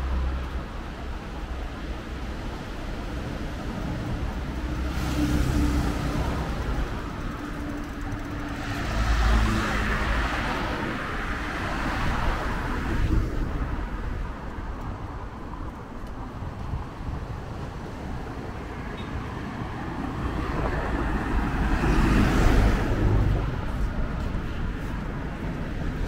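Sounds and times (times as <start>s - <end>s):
cars passing: 0.0s - 26.0s.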